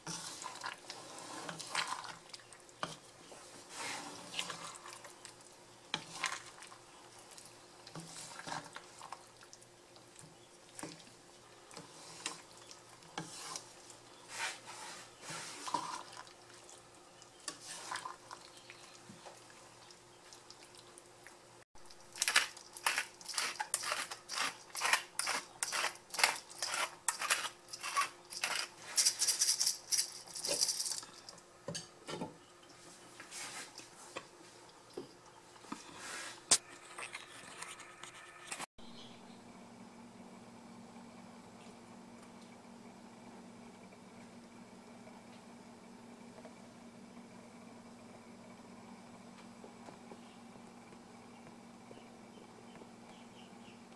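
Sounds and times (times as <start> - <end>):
wooden spatula scraping a pan: 0.0 - 2.2, 2.8 - 5.0, 8.0 - 8.9, 13.1 - 16.2, 17.5 - 18.2, 22.8 - 29.2
pepper mill grinding: 22.1 - 31.4.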